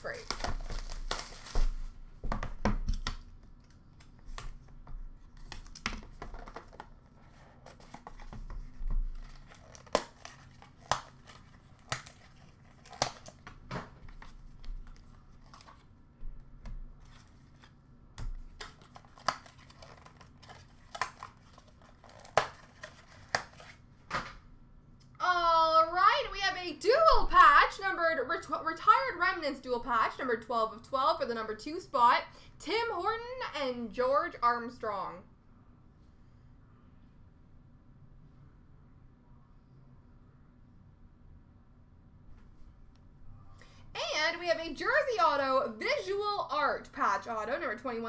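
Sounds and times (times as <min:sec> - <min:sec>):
wrapping crinkling and tearing: 0:00.0 - 0:02.0, 0:07.5 - 0:13.5, 0:18.4 - 0:23.8.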